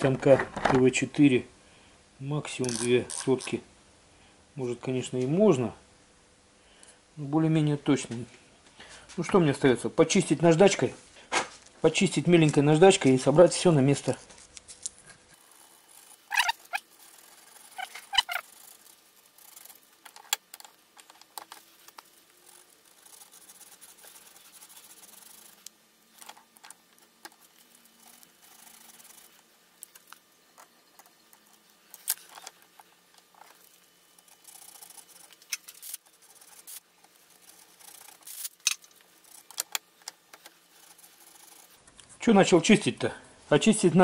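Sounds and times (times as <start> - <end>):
sandpaper rubbing on metal: 15.4 - 20.0, 21.6 - 26.4, 27.4 - 29.5, 33.6 - 38.6, 40.6 - 41.8.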